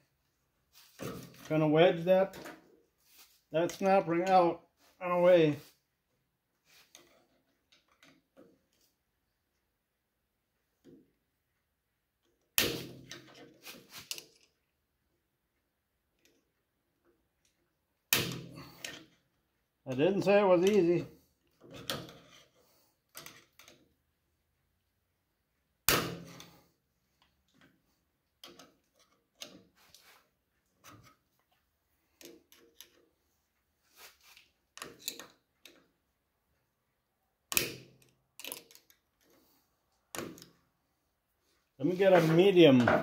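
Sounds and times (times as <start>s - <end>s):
screwdriver clicking and scraping on steel: 34.2s - 36.0s, 37.5s - 39.5s.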